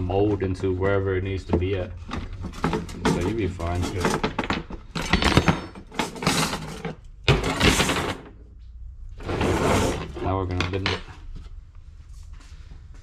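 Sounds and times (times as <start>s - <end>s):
metal tubing scraping clatters: 2.3s - 4.4s.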